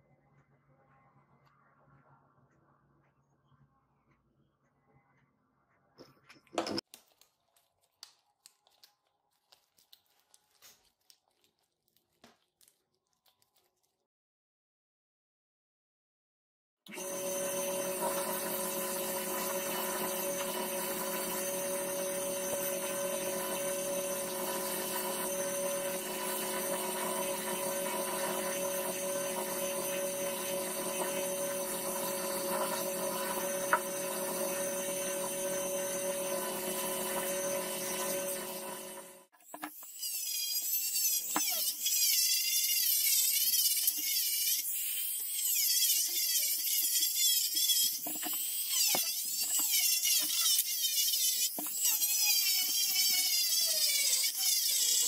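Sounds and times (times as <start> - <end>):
belt sander running: 16.9 - 39.3
rotary tool whining: 16.9 - 55.0.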